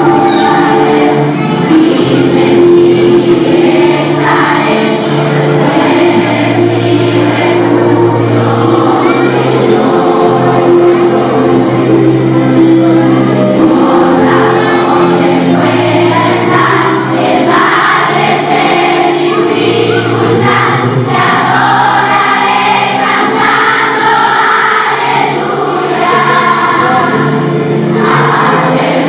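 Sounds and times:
children's choir singing: 0:00.0 - 0:29.0.

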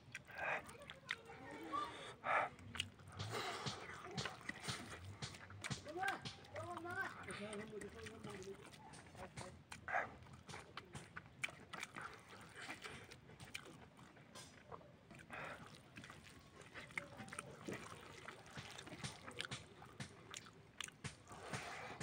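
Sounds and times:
chewing and mouth smacks: 0:00.0 - 0:22.0
fingers scooping food in steel bowl: 0:02.6 - 0:22.0.

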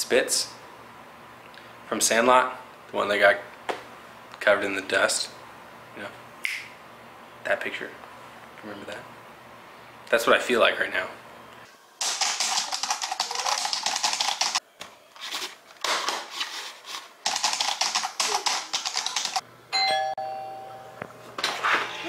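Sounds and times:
fast typing on keyboard: 0:12.0 - 0:14.6, 0:17.2 - 0:19.4
doorbell chime: 0:19.7 - 0:21.1.

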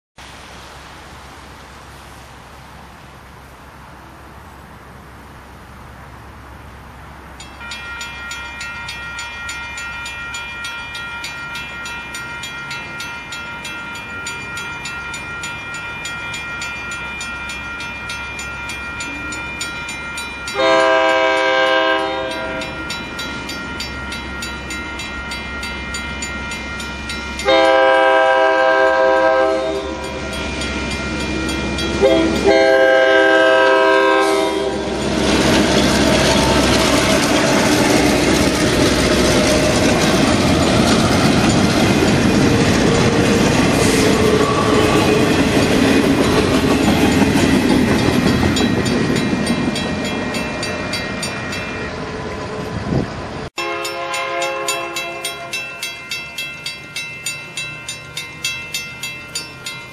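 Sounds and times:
train wheels on rails: 0:06.1 - 0:59.9
crossing bell ringing: 0:07.3 - 0:59.9
locomotive horn blasts: 0:20.6 - 0:22.8, 0:27.4 - 0:30.2, 0:32.0 - 0:35.0, 0:53.6 - 0:55.6.

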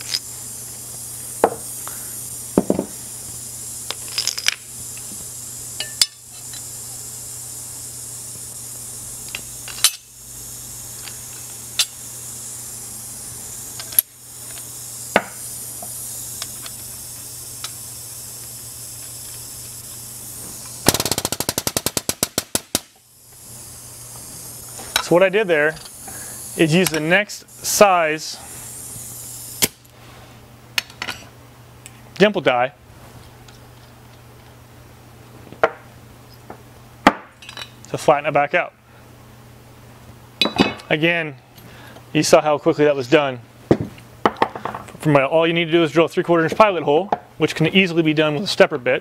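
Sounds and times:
steel parts clinking: 0:03.9 - 0:04.6, 0:05.8 - 0:06.6, 0:09.3 - 0:10.1.

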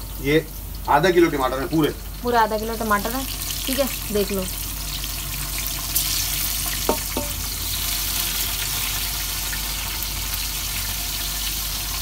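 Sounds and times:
hot oil sizzling in a pot: 0:00.0 - 0:12.0
tomatoes dropping into pot: 0:06.8 - 0:07.4.

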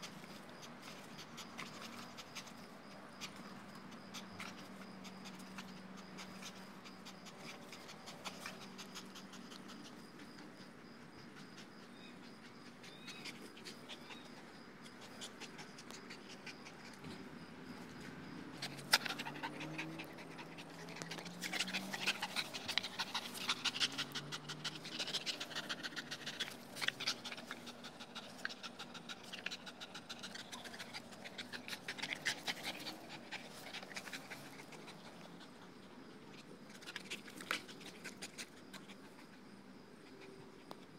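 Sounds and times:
dog panting rapidly: 0:00.8 - 0:10.4, 0:18.6 - 0:36.0.

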